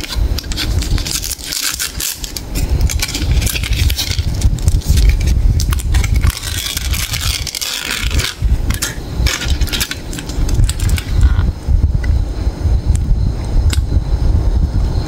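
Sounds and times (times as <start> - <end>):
wrapper crinkling and crackling: 0.0 - 11.4
low rumble: 0.3 - 15.0.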